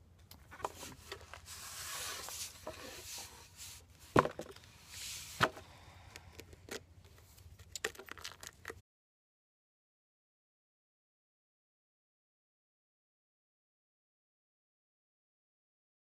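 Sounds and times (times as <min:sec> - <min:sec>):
cardboard tube rustling and scraping: 0:00.4 - 0:05.6.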